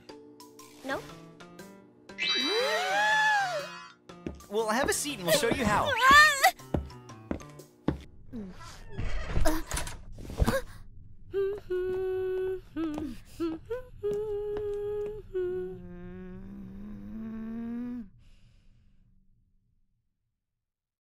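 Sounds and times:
person humming a tune: 0:11.3 - 0:18.2.

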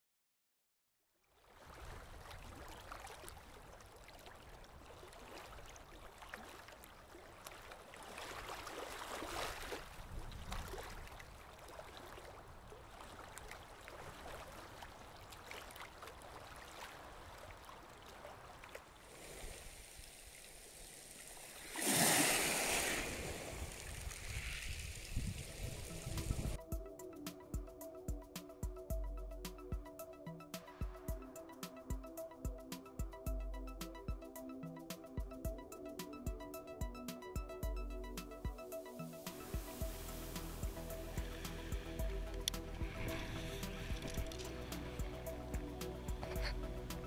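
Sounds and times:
small waves on pebble beach: 0:07.5 - 0:26.6.

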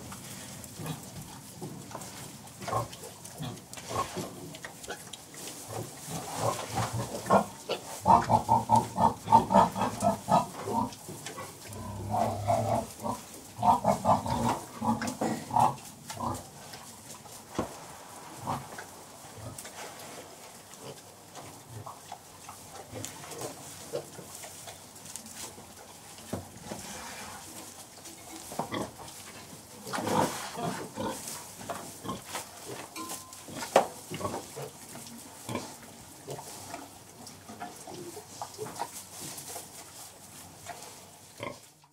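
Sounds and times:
pigs grunting: 0:00.0 - 0:01.4, 0:02.6 - 0:05.1, 0:05.7 - 0:16.7, 0:22.8 - 0:24.8, 0:28.2 - 0:32.9, 0:33.5 - 0:39.0, 0:41.4 - 0:41.7.

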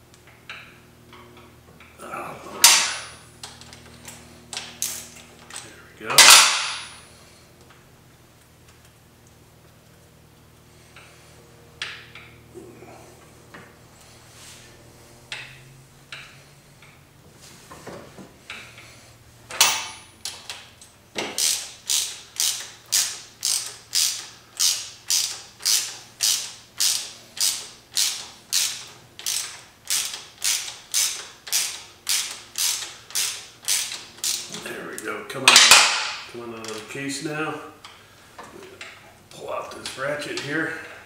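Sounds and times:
metal rattle: 0:04.6 - 0:07.0
socket ratchet rasping: 0:21.3 - 0:34.5.

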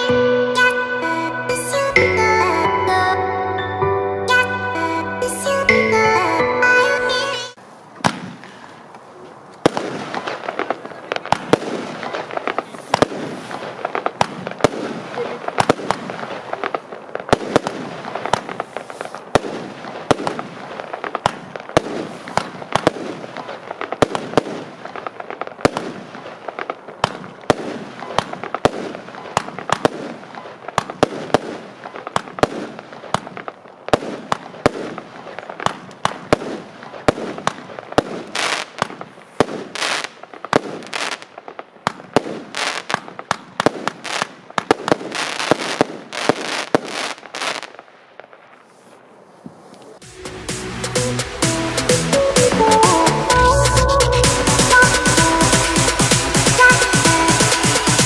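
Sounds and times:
firework bangs: 0:07.2 - 0:58.0
firework crackling: 0:07.2 - 0:58.0
hissing crackle: 0:07.6 - 0:31.0.

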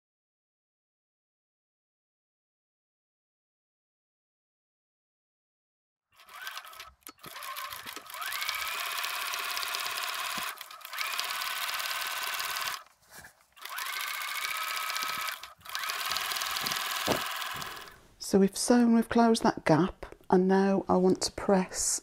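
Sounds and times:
sewing machine motor whine: 0:06.2 - 0:12.9, 0:13.6 - 0:18.0.

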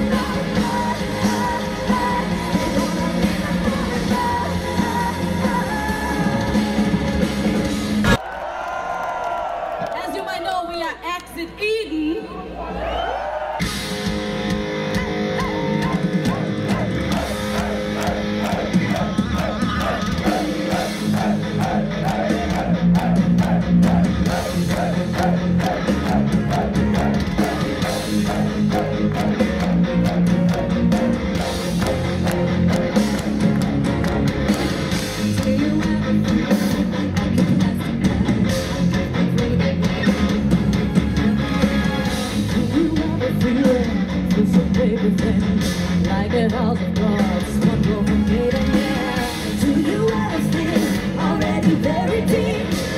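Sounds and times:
woman singing: 0:00.0 - 0:07.1, 0:35.2 - 0:40.4, 0:42.5 - 0:52.9
drum kit: 0:00.0 - 0:08.2, 0:13.6 - 0:52.9
electric guitar: 0:00.0 - 0:08.2, 0:13.6 - 0:52.9.

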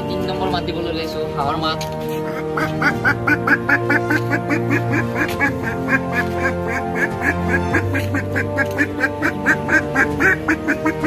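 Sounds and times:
background music: 0:00.0 - 0:11.0
man imitating duck quacks: 0:02.2 - 0:11.0.

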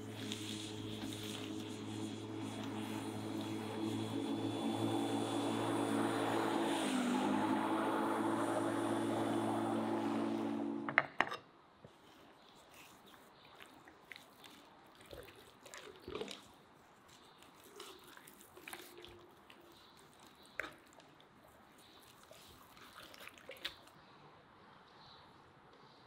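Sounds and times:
hands rubbing raw chicken: 0:00.0 - 0:07.6, 0:11.9 - 0:23.9.

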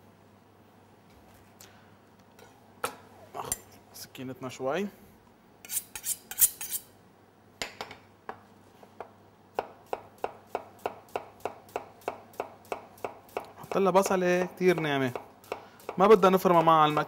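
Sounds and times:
knife scraping on honing steel: 0:05.6 - 0:06.9
knife chopping onion on board: 0:09.5 - 0:17.0.

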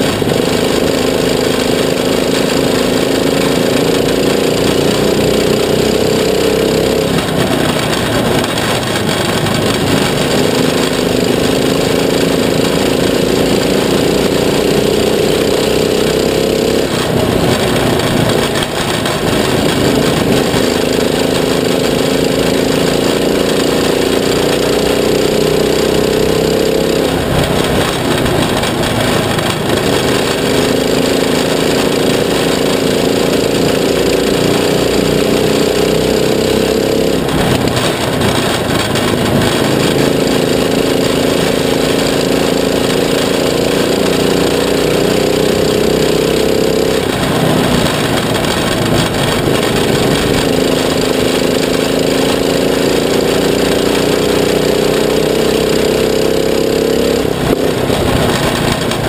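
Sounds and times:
kart engine racing: 0:00.0 - 0:59.0.

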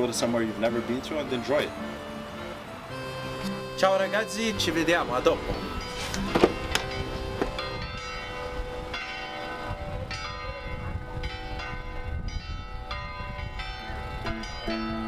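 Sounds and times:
plucked string tune: 0:00.0 - 0:09.7
church bells ringing: 0:00.0 - 0:15.0.

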